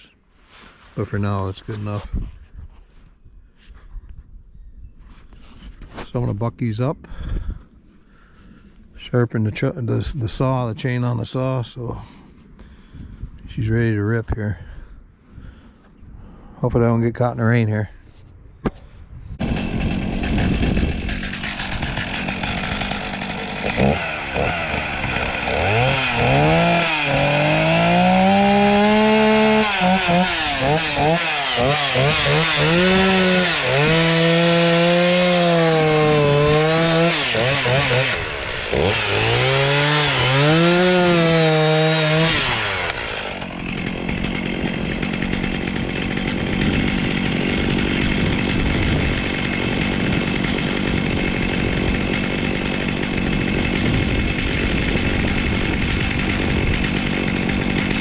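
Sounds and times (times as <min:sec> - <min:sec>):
chainsaw cutting logs: 0:18.7 - 0:58.0.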